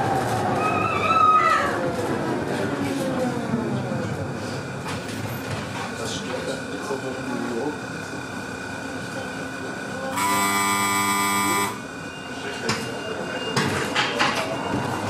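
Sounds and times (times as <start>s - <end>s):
faint electrical whine: 10.1s - 11.9s
buzzing door-warning signal: 10.1s - 12.2s.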